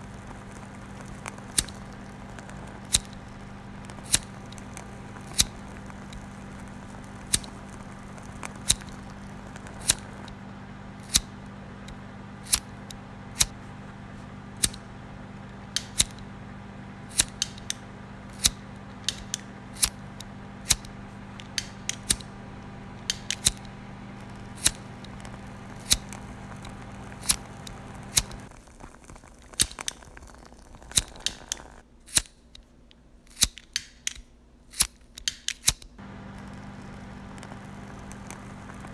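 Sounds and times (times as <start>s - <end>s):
sharp clicks: 0.0s - 10.4s, 14.6s - 14.8s, 15.7s - 16.3s, 17.1s - 22.3s, 23.0s - 28.5s, 29.5s - 32.7s, 33.3s - 38.9s
faint hiss: 0.0s - 11.7s
steady hum: 0.0s - 31.9s, 36.0s - 38.9s.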